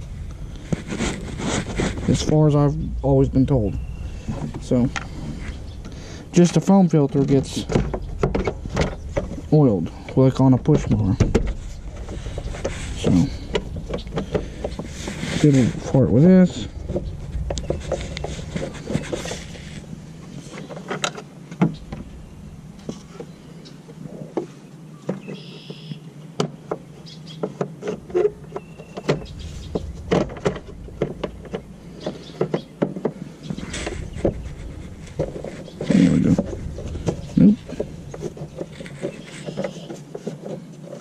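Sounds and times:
low hum: 0.0s - 24.4s, 27.7s - 40.2s.

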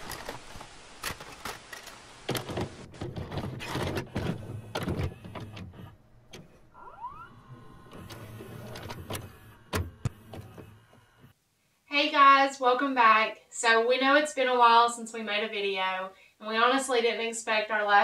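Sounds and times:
steady hiss: 0.0s - 2.9s
tape mechanism clunks and clicks: 0.0s - 6.7s, 7.5s - 11.3s
motor whine rising: 6.7s - 11.3s.

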